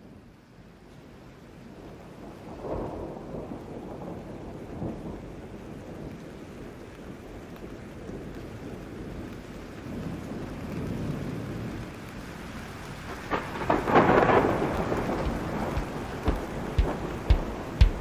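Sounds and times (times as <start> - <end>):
steady rain: 0.0 - 18.0
thunderclap: 13.0 - 18.0
short low thumps: 14.7 - 18.0.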